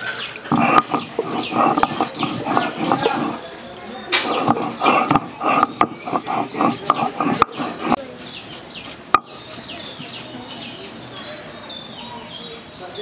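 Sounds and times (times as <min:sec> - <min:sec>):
birds chirping: 0:00.0 - 0:13.0
stone rolling pin grinding on stone: 0:00.5 - 0:10.9.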